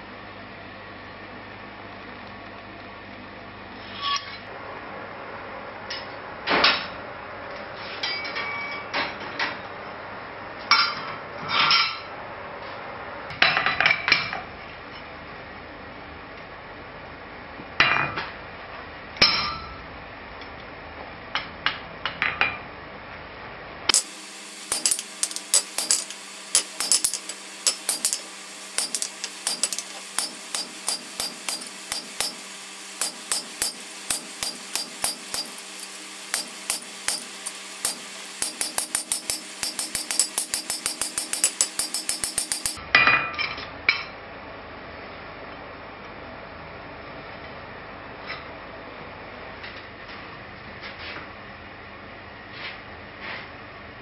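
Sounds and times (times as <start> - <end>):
hammer blows on hot steel: 23.9 - 42.8
steel tools clanking: 23.9 - 42.8.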